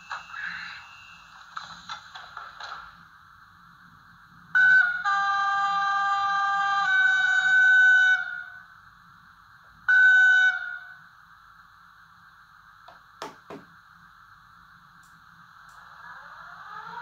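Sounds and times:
faint steady hiss: 0:00.0 - 0:04.6, 0:06.2 - 0:16.5
model locomotive horn: 0:04.6 - 0:08.6, 0:09.9 - 0:11.0.

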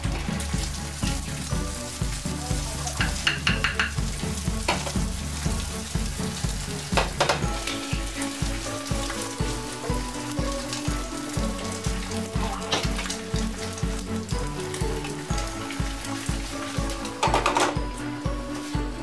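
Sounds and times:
background music with steady beat: 0:00.0 - 0:19.0
egg sizzling in a frying pan: 0:00.0 - 0:19.0
spatula scraping and tapping pan: 0:03.0 - 0:05.1, 0:06.9 - 0:08.0.

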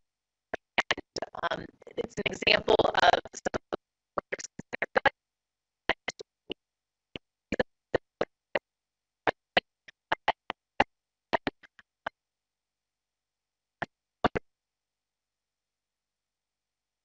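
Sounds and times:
woman speaking in clipped fragments: 0:00.8 - 0:05.1.

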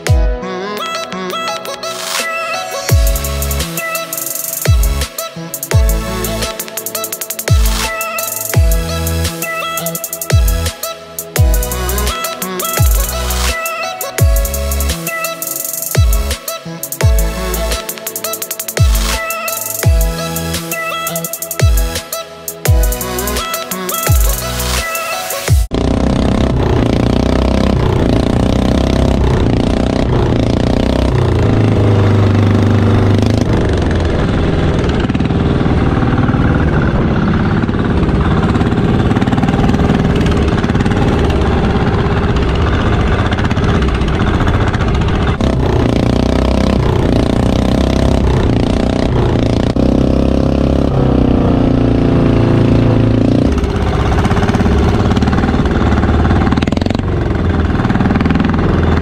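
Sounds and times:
boat engine running: 0:25.7 - 0:59.0.

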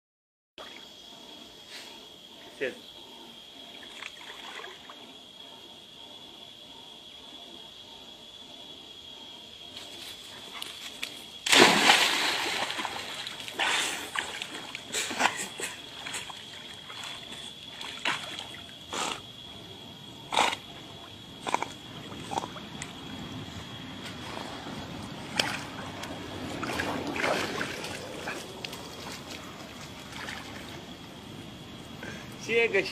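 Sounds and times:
water sloshing as dog swims: 0:09.9 - 0:31.6
dog splashing into water: 0:11.0 - 0:18.6, 0:26.6 - 0:28.4.

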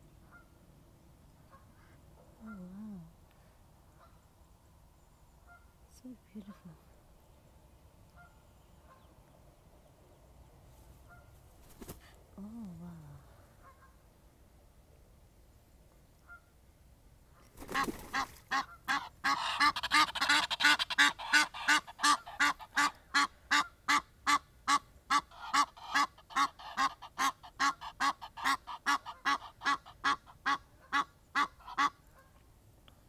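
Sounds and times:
geese honking: 0:18.5 - 0:32.3.

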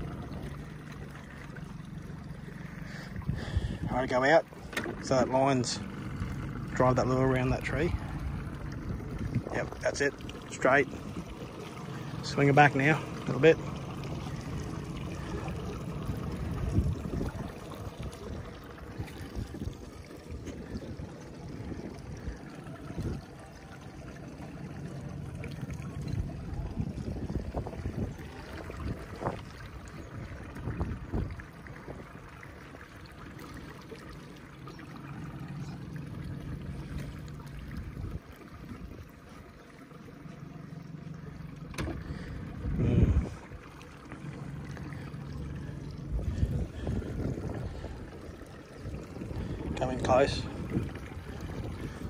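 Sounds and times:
steady low hum: 0:00.0 - 0:52.0
water washing: 0:00.0 - 0:52.0
low knocks against boat: 0:04.5 - 0:05.3, 0:41.5 - 0:48.2.

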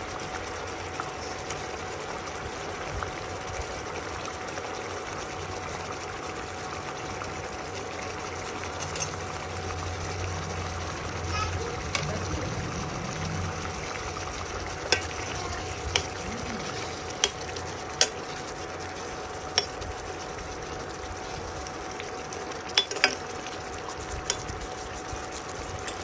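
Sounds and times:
steady hiss and hum: 0:00.0 - 0:26.0
spoon clinking against pot: 0:22.8 - 0:23.2.

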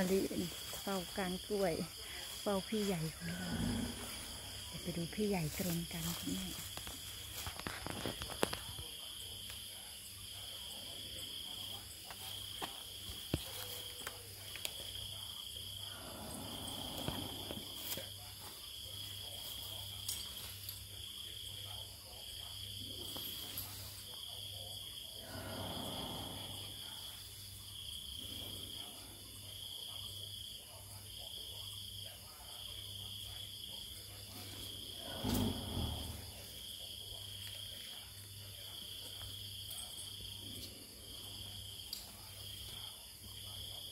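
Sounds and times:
high insect buzz: 0:00.0 - 0:04.9, 0:15.0 - 0:21.8, 0:23.0 - 0:29.7, 0:33.3 - 0:37.2
night insects chirping: 0:00.0 - 0:43.9
elephant snoring: 0:01.4 - 0:05.0, 0:15.6 - 0:18.1, 0:25.0 - 0:29.3, 0:34.3 - 0:36.7.

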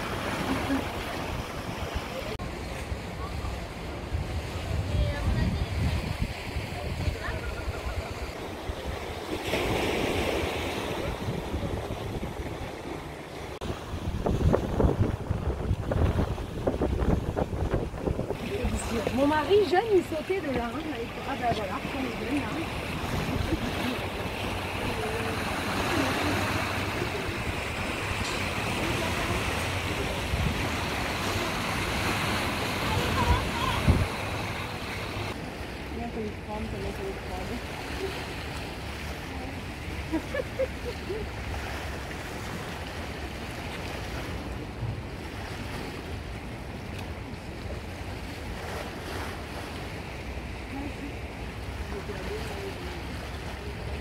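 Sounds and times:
sea washing against rocks: 0:00.0 - 0:54.0
faint voices: 0:00.3 - 0:09.3
wind on microphone: 0:03.5 - 0:54.0
wind noise: 0:04.1 - 0:09.2, 0:13.6 - 0:19.6, 0:22.8 - 0:35.4.

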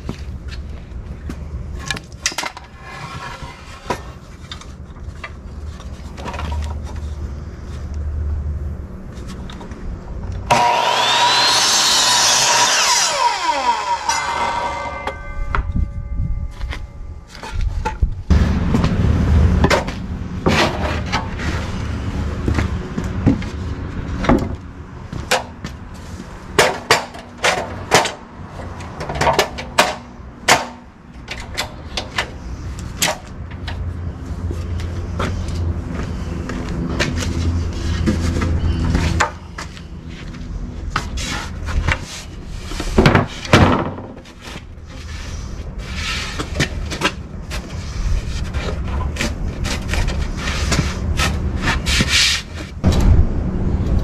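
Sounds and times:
steady low hum: 0:14.2 - 0:23.8, 0:52.8 - 0:54.0.

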